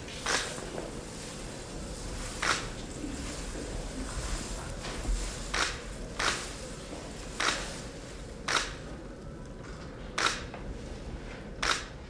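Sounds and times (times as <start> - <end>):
faint room noise: 0.0 - 12.0
sharp clicks: 8.5 - 8.8, 10.2 - 10.4, 11.6 - 11.9.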